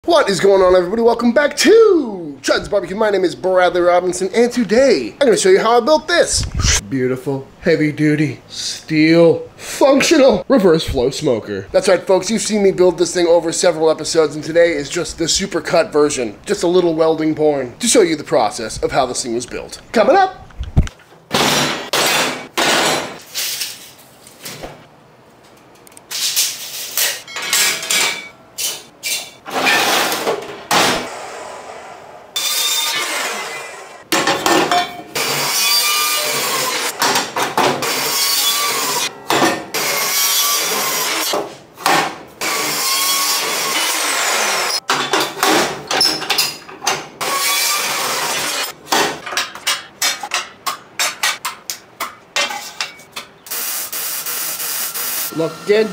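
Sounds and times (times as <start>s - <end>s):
steel pieces clanking and scraping: 26.1s - 30.2s
chop saw cutting steel: 32.4s - 34.0s, 35.1s - 37.0s, 37.7s - 39.1s, 39.7s - 41.4s, 42.4s - 44.8s, 47.2s - 48.8s.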